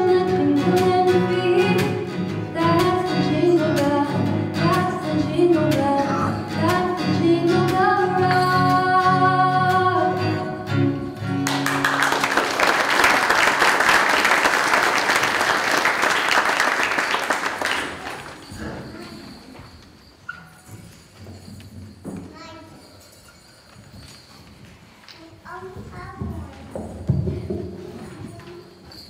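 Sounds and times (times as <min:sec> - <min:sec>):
woman singing: 0:00.0 - 0:10.7
acoustic guitar: 0:00.0 - 0:16.2
audience applause: 0:11.4 - 0:18.6.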